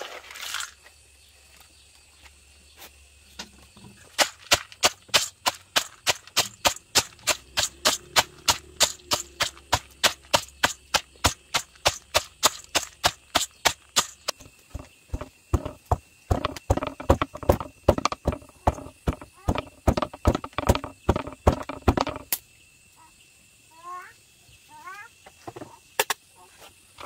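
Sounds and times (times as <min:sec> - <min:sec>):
pestle pounding in a metal bowl: 0:04.2 - 0:22.3.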